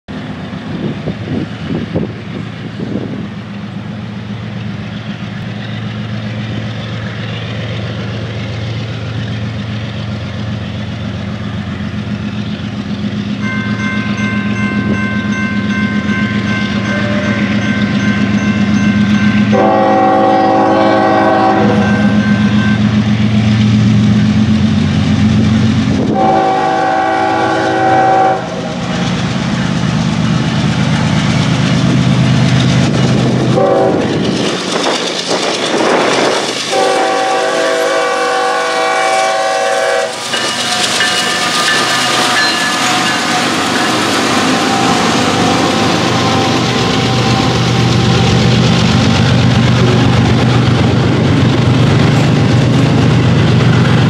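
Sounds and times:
diesel locomotive engine drone: 0.1s - 54.0s
crossing bell ringing: 12.9s - 23.4s, 39.1s - 49.0s
locomotive air horn blasts: 16.7s - 17.6s, 19.4s - 22.8s, 26.1s - 28.8s, 33.5s - 34.1s, 36.7s - 40.2s.

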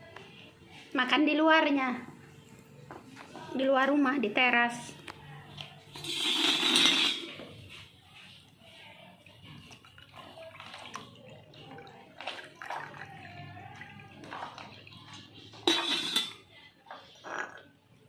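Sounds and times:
water pouring into a glass: 9.4s - 15.7s.

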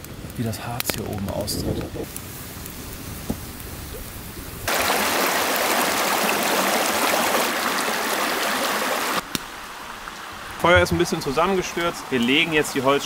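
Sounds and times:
campfire crackling: 0.0s - 13.0s
creek rushing over stones: 4.7s - 13.0s.

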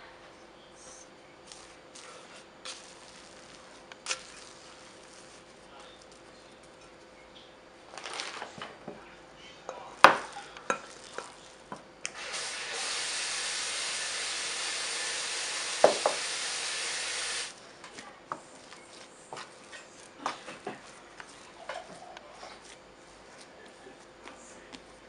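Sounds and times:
steady hiss: 0.8s - 6.8s, 10.0s - 17.6s.

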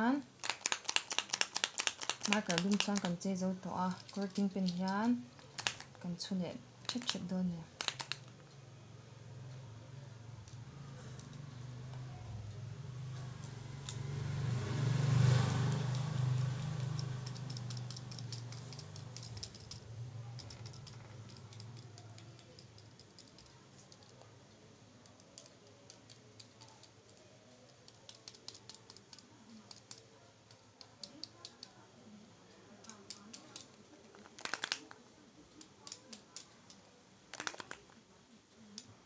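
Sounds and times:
pen tip tapping plastic: 0.4s - 3.2s, 6.9s - 8.3s, 15.8s - 19.8s, 34.3s - 34.9s.

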